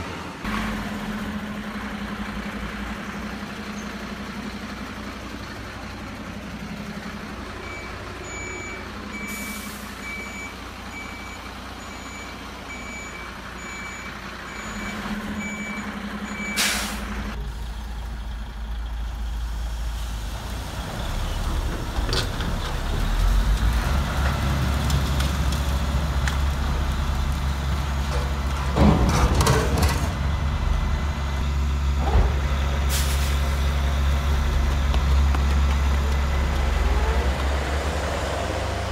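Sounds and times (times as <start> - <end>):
diesel engine drone: 0.0 - 38.9
reversing beeper: 7.6 - 17.0
air brake hiss: 9.3 - 10.0, 16.6 - 17.1, 32.9 - 33.6.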